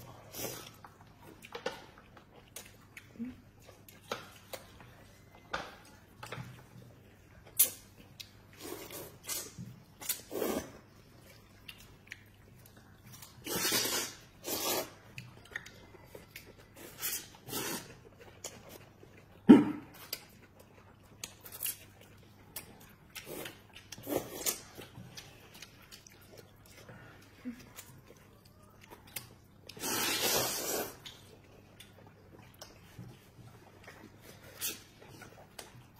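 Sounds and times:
people slurping noodles: 0:13.4 - 0:15.1, 0:16.8 - 0:18.0, 0:29.7 - 0:31.0.

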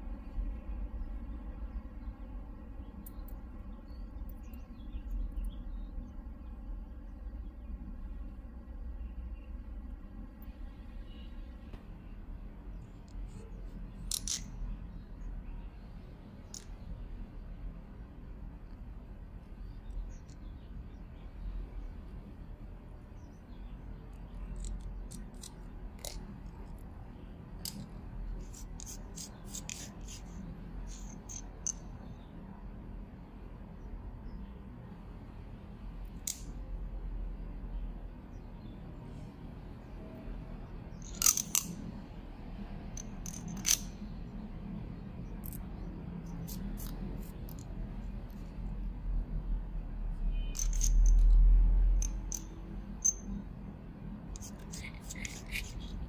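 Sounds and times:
small screwdriver clicking and scraping: 0:13.0 - 0:14.7, 0:24.1 - 0:26.9, 0:27.6 - 0:31.9, 0:41.0 - 0:41.8, 0:43.0 - 0:44.0, 0:45.4 - 0:48.5, 0:50.6 - 0:51.4, 0:52.0 - 0:53.2, 0:54.3 - 0:56.0.

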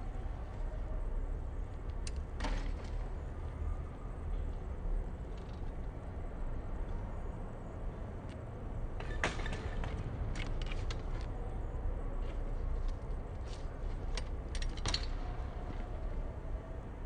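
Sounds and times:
bike clicks and knocks: 0:01.8 - 0:03.1, 0:09.0 - 0:11.4, 0:12.8 - 0:15.8.

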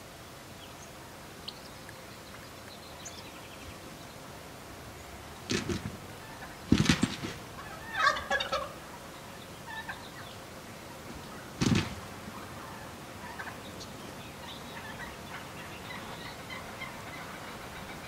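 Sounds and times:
wild turkeys gobbling: 0:06.2 - 0:06.6, 0:07.6 - 0:09.0, 0:09.6 - 0:10.2, 0:11.3 - 0:13.8, 0:14.4 - 0:18.0.

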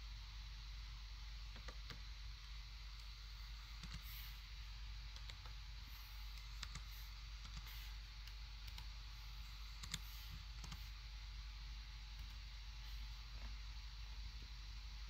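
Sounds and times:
steady hiss and low hum: 0:00.0 - 0:15.0
keyboard and mouse clicks: 0:03.8 - 0:04.0, 0:06.4 - 0:08.9, 0:09.8 - 0:10.9.

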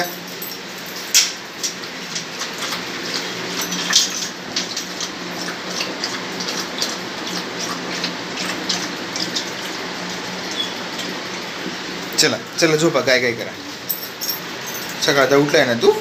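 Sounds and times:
dog eating from metal bowl: 0:00.1 - 0:11.2.

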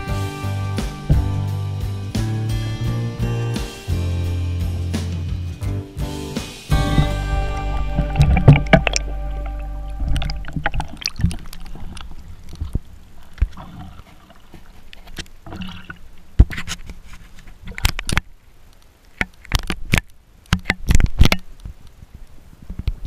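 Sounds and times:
water splashing and dripping: 0:07.8 - 0:16.6.

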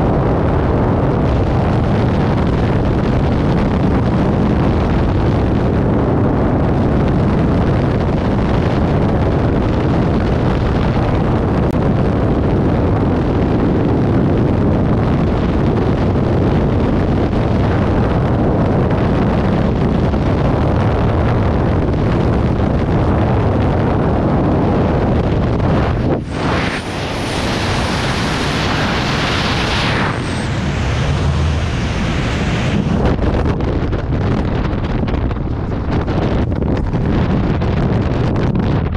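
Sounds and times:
wind noise on microphone: 0:00.0 - 0:38.9.

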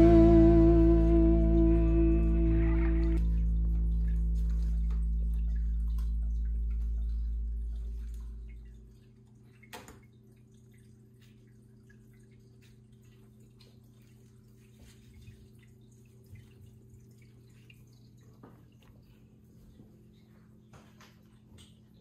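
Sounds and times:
deep low sound: 0:00.0 - 0:08.9
steady low hum: 0:00.0 - 0:09.4.

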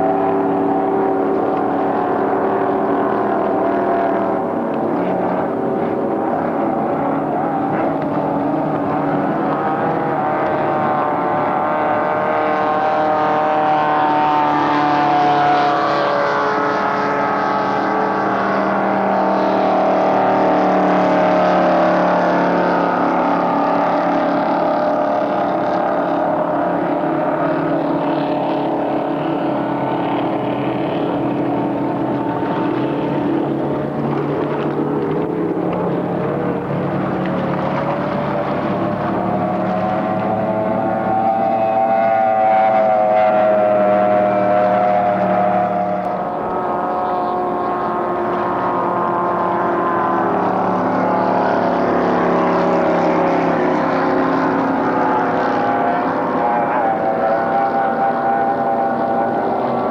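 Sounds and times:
powerboat engines passing: 0:00.0 - 0:59.9.

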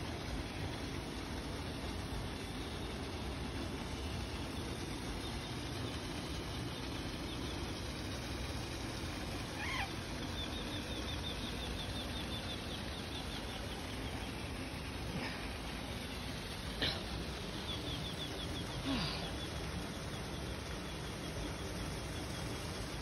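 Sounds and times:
bird calling and trilling: 0:09.4 - 0:14.4.

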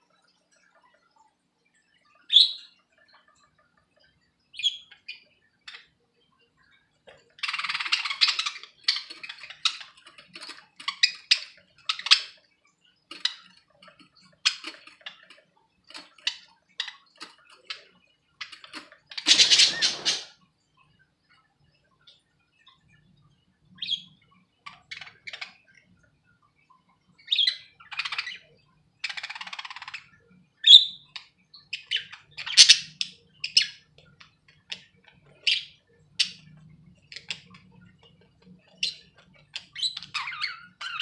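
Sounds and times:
budgerigars chirping and chattering: 0:02.2 - 0:06.0, 0:07.1 - 0:12.5, 0:13.1 - 0:20.4, 0:23.8 - 0:25.8, 0:27.2 - 0:41.0.

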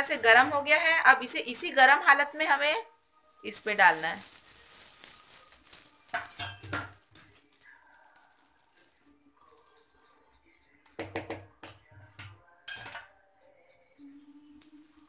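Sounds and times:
faint bird chirps: 0:09.1 - 0:11.0, 0:13.1 - 0:15.0.

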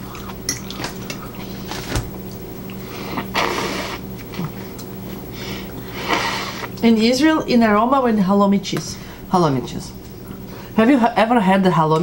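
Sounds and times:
steady low hum: 0:00.0 - 0:12.0
breathy hissy rustle: 0:02.8 - 0:04.0, 0:05.3 - 0:06.8.

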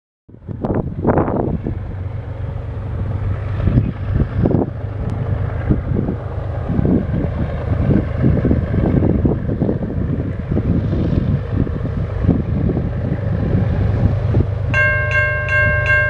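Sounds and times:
steady low rumble: 0:00.3 - 0:16.0
wind buffeting microphone: 0:00.3 - 0:16.0.

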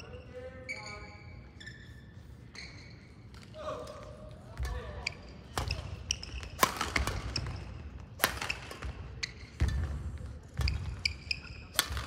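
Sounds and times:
sneaker squeaks: 0:00.0 - 0:12.0
racket striking shuttlecock: 0:05.6 - 0:10.0.

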